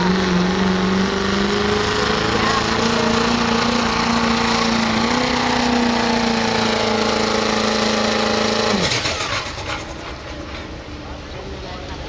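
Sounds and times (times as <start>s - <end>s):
diesel engine at full throttle: 0.0s - 12.0s.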